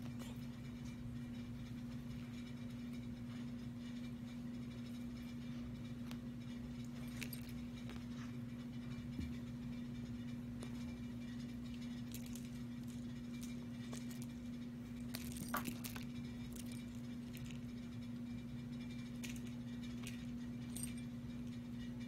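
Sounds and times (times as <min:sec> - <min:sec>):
steady low hum: 0:00.0 - 0:22.0
collar tags clinking: 0:06.8 - 0:08.0, 0:11.6 - 0:17.8, 0:18.9 - 0:21.7.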